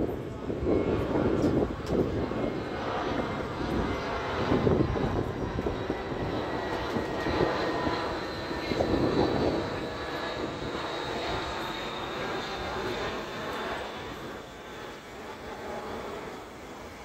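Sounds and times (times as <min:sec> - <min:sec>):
jet airliner passing overhead: 0:00.0 - 0:17.0.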